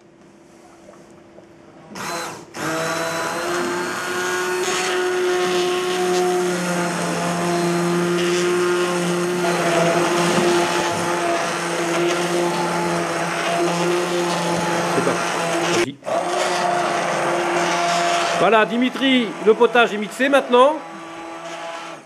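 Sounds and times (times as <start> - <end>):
soup churning: 0.4 - 22.0
immersion blender motor whine: 2.0 - 22.0.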